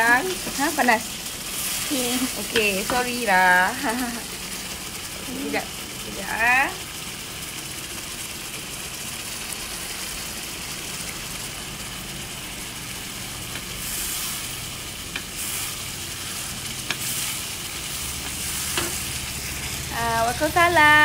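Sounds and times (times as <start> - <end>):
wooden spatula stirring: 0.0 - 4.5, 12.6 - 20.0
paste sizzling in hot oil: 0.0 - 21.0.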